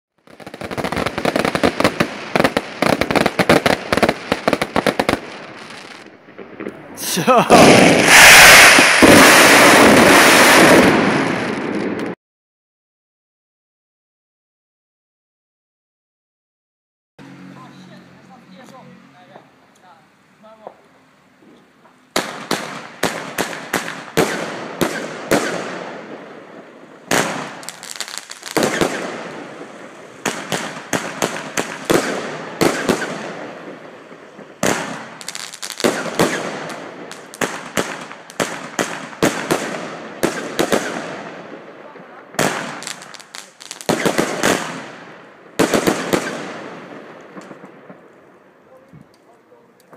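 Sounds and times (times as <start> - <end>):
firework bangs: 0.2 - 12.2, 22.1 - 48.5.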